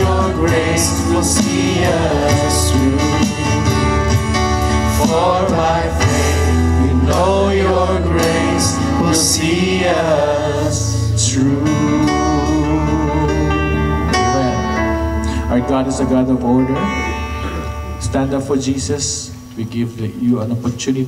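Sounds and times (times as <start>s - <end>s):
person singing: 0.0s - 4.1s, 5.0s - 15.8s
steady bass line: 0.0s - 19.1s
electric guitar: 0.0s - 19.6s.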